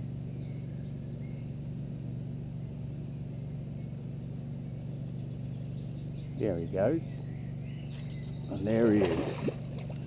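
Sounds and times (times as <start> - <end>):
faint bird chirps: 0.0 - 2.2, 4.8 - 8.9
steady low hum: 0.0 - 10.0.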